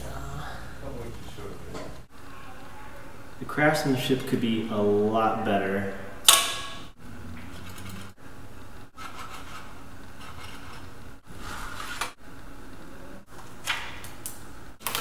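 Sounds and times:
paper rubbing and scraping: 9.0s - 12.2s.

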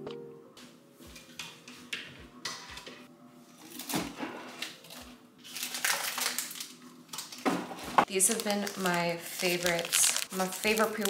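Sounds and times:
rummaging through packaged snacks: 3.5s - 7.4s, 8.0s - 11.0s
plastic wrappers crinkling: 3.6s - 11.0s.

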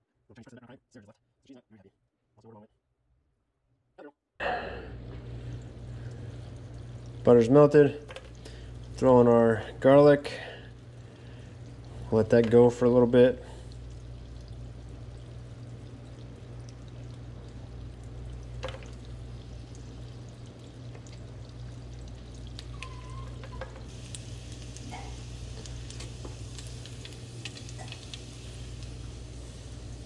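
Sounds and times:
constant low hum: 4.0s - 30.0s
butter and garlic sizzling in a pan: 21.8s - 30.0s.

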